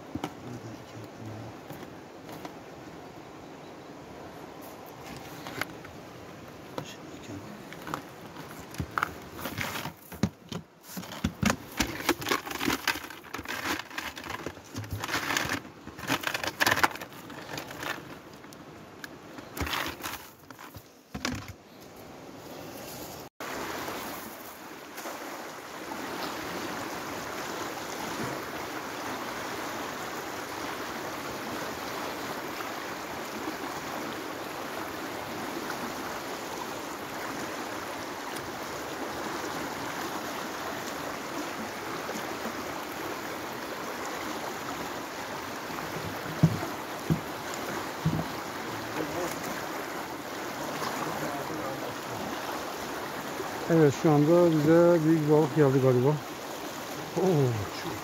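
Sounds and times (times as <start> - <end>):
fast-flowing river rushing: 23.4 - 58.0.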